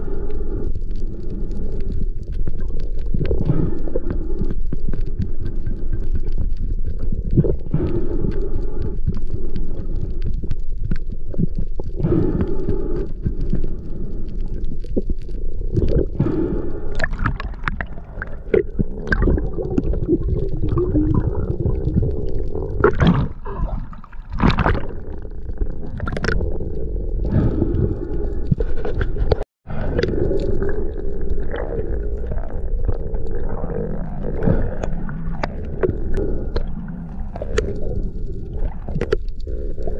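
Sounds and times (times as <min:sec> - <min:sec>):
underwater bubbling: 0:00.0 - 0:39.9
underwater rumble: 0:00.0 - 0:39.9.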